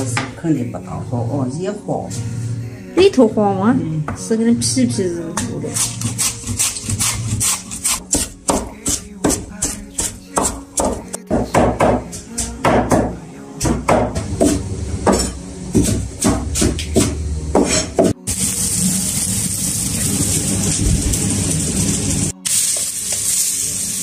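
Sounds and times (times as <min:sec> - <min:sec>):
pumpkin grated on hand grater: 0:05.7 - 0:10.6.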